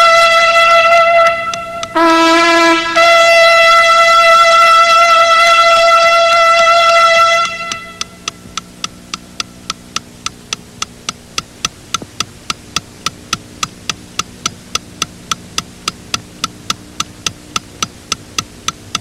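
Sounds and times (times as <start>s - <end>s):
low steady hum: 0.0s - 19.0s
wristwatch ticking: 1.4s - 2.0s, 7.4s - 19.0s.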